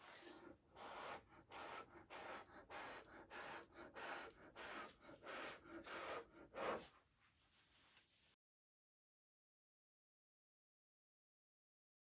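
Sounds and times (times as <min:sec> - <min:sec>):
person blowing puffs of breath: 0:00.0 - 0:07.0.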